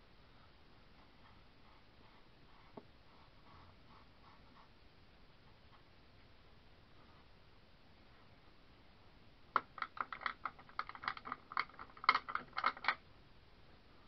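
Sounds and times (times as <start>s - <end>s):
sharp clicks and taps: 9.6s - 13.0s.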